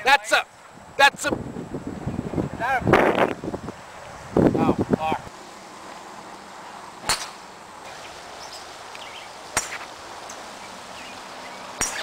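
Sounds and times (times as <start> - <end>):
golf driver striking ball: 7.0 - 7.5.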